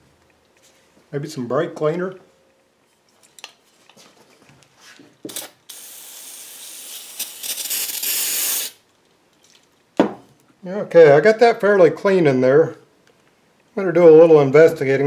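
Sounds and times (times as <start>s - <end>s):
aerosol spray hissing: 5.3s - 8.8s.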